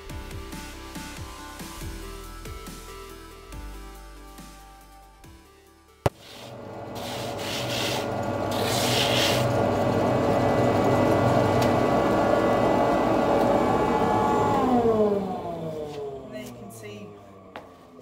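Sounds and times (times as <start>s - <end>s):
grit rasping on sheepskin: 6.1s - 9.5s
buffing wheel motor hum: 6.1s - 16.3s.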